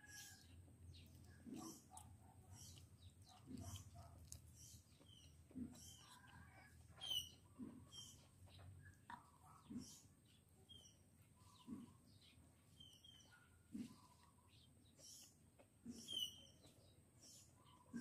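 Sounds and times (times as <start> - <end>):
person chewing food: 0.0 - 8.4
small birds chirping: 0.0 - 18.0.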